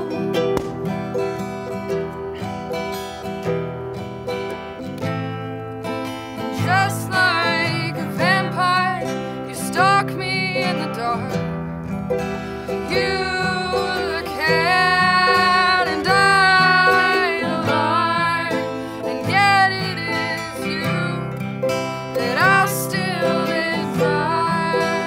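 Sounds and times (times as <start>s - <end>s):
strummed acoustic guitar: 0.0s - 25.0s
ukulele: 0.0s - 25.0s
woman singing: 6.4s - 11.6s, 12.6s - 25.0s.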